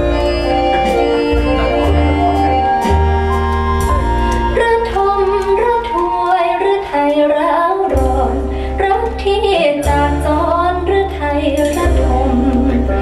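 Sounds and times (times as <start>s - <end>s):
deep bass notes: 0.0s - 13.0s
held keyboard chords: 0.0s - 13.0s
woman singing slow melody: 4.6s - 13.0s.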